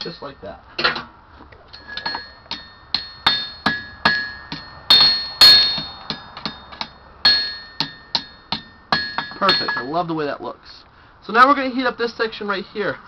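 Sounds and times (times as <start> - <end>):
hammer striking steel on anvil: 1.8 - 10.0.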